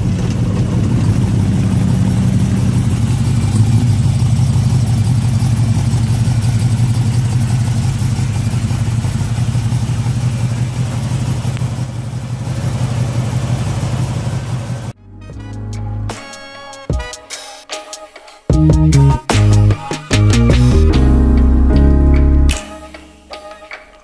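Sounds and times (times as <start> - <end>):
truck engine idling: 0.0 - 16.1.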